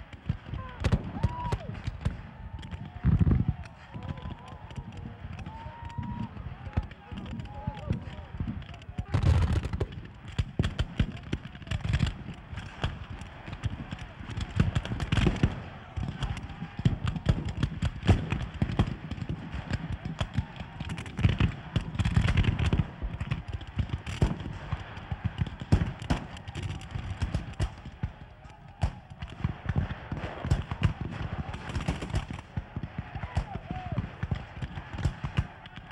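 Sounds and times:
muskets firing: 0.0 - 35.9
men's voices: 0.4 - 1.8, 2.9 - 10.3.

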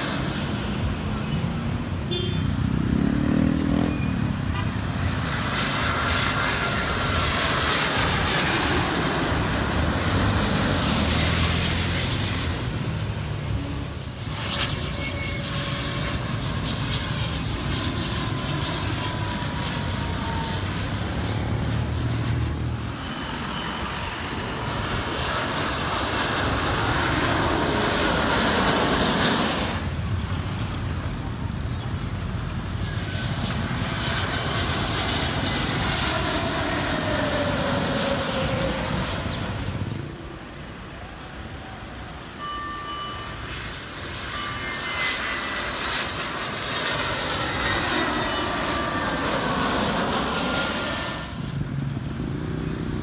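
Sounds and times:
jet engines roaring overhead: 0.0 - 53.0
faint high whine: 14.2 - 27.6, 32.4 - 53.0.

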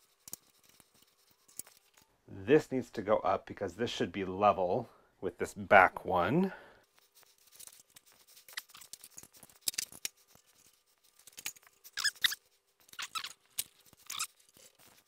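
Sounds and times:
metal squeaks: 11.9 - 15.0.

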